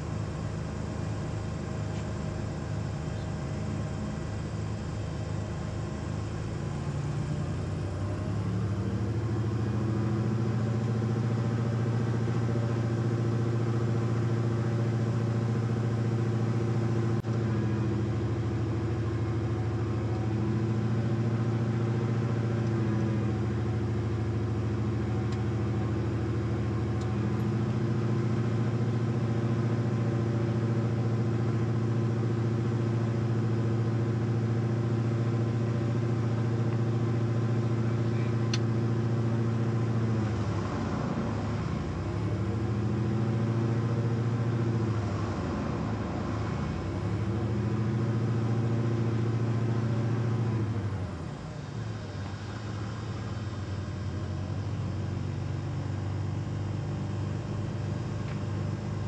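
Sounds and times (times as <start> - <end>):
aircraft engine and propeller drone: 0.0 - 59.0.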